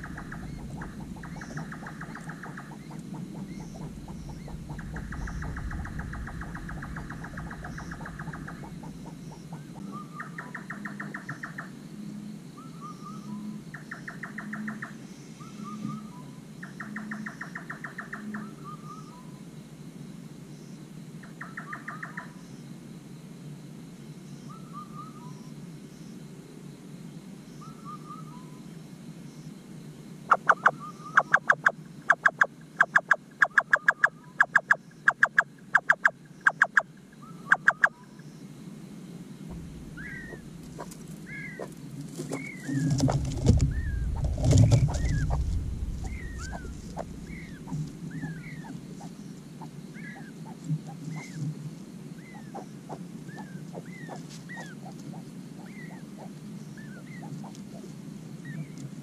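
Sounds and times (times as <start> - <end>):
low rumble: 0.0 - 9.9, 39.4 - 49.0
nightjar knocking calls: 0.0 - 11.7, 30.3 - 38.2, 39.5 - 51.4.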